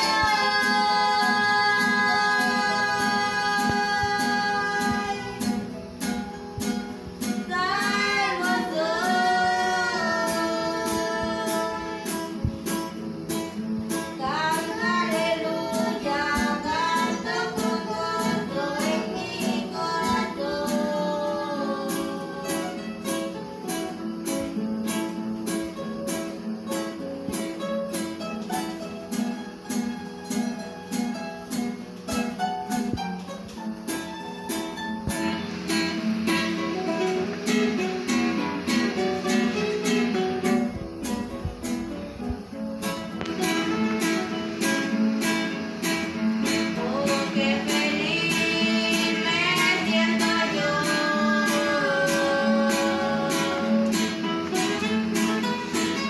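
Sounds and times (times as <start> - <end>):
voices singing a hymn: 0.0 - 6.0, 7.0 - 24.6, 43.2 - 56.0
acoustic guitars strumming: 0.0 - 56.0.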